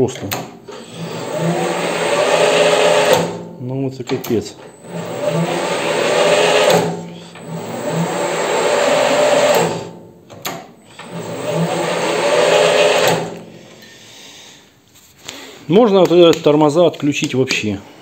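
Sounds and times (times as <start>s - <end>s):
metal lathe whine: 0.7s - 3.4s, 4.6s - 10.0s, 10.8s - 14.0s.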